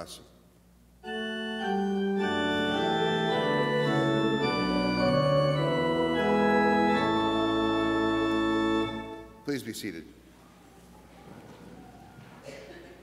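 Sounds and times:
church organ chords: 1.0 - 9.9.

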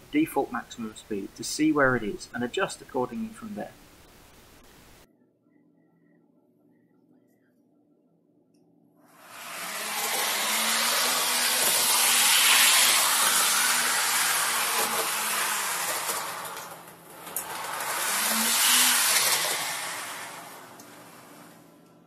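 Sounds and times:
model train rushing hiss: 9.2 - 21.6.

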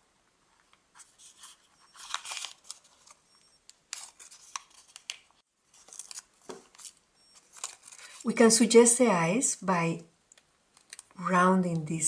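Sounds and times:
paper crinkling and rustling: 0.7 - 8.3, 10.7 - 11.2.

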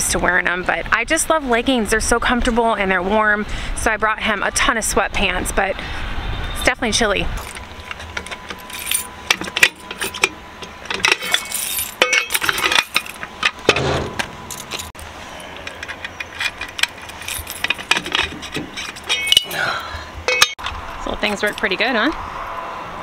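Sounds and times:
key jingling in lock: 7.4 - 10.3, 11.0 - 13.2, 14.5 - 15.0, 15.6 - 19.7
wheel clamp arms clanking: 7.4 - 20.7.

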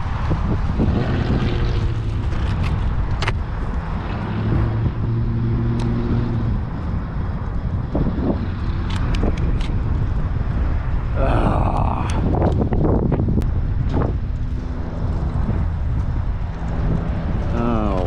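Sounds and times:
wind rumble on microphone: 0.0 - 18.0
sharp clicks: 8.8 - 9.8.

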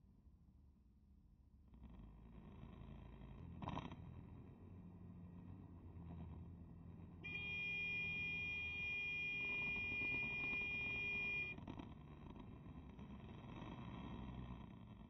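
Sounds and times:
motorcycle rumble: 5.4 - 15.0.

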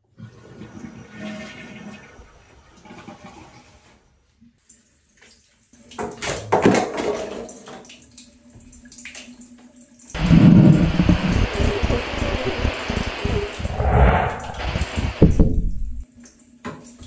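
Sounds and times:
loud rush of noise: 12.5 - 16.0.

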